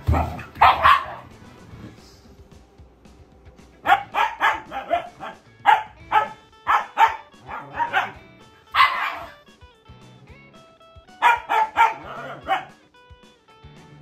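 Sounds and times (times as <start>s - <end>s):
puppy barking: 0.0s - 1.3s, 3.8s - 9.4s, 11.2s - 12.8s
background music: 0.0s - 14.0s.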